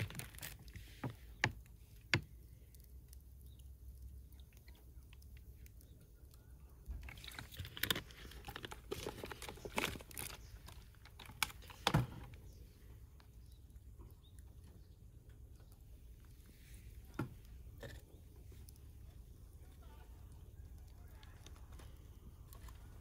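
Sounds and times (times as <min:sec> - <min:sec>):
rustling: 0:06.9 - 0:12.8.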